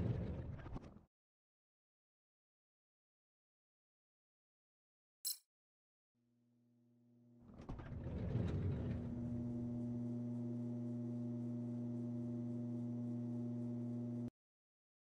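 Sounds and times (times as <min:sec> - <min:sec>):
mechanical rumble: 0:07.4 - 0:14.3
low electric hum: 0:08.1 - 0:14.3.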